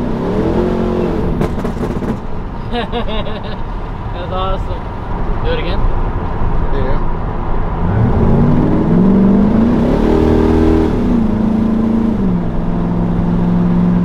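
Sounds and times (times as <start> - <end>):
pickup engine revving: 0.0 - 3.2, 7.6 - 14.0.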